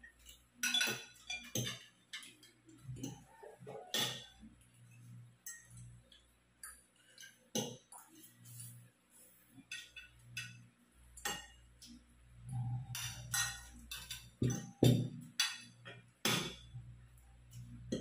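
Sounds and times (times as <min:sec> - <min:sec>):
forks clinking on plates: 0:00.0 - 0:04.4, 0:05.4 - 0:05.9, 0:09.6 - 0:10.6, 0:12.9 - 0:16.7.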